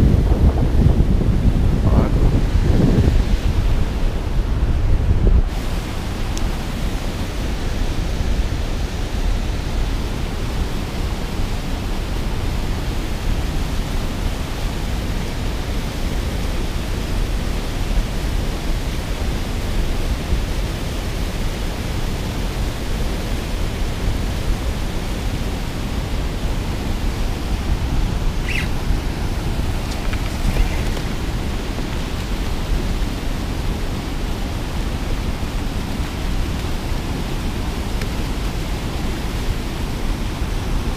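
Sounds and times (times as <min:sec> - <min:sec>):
turbulent water churning: 0:00.0 - 0:40.9.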